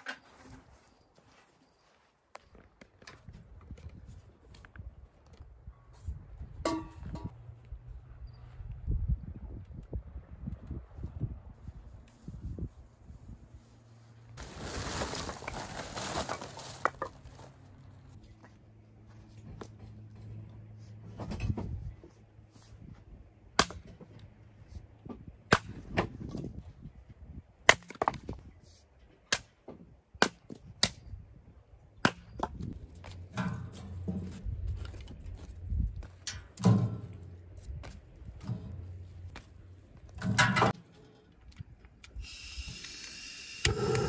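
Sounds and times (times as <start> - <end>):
rustling noise: 11.6 - 18.3.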